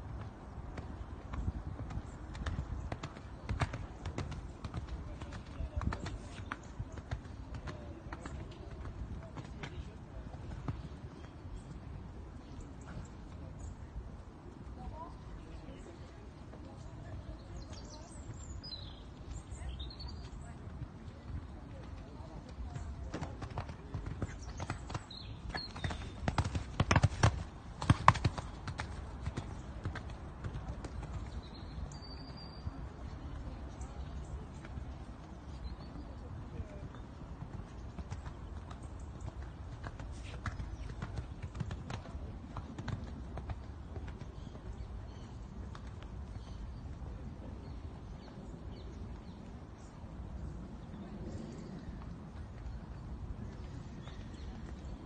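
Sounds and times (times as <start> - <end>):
faint hoofbeats on sand: 0.0 - 55.0
horse hoofbeats cantering: 19.8 - 32.2.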